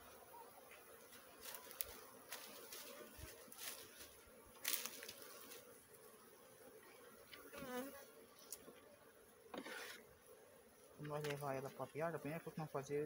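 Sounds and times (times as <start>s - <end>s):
bees buzzing: 0.0s - 13.0s
sharp rustling crackles: 1.1s - 5.7s.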